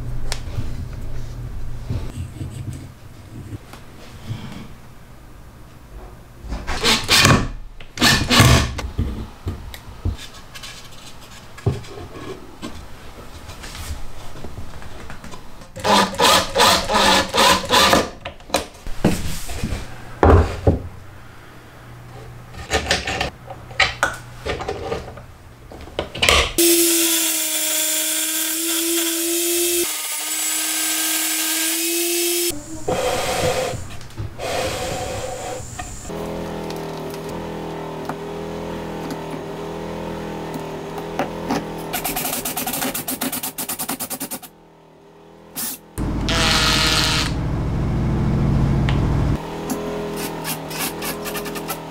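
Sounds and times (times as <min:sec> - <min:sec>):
cordless drill running: 0:45.6 - 0:47.4
drill boring into wood: 0:46.3 - 0:47.4.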